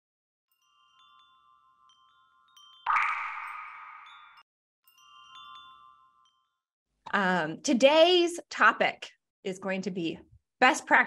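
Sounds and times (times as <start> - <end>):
tinkling chime tones: 0.5 - 6.7.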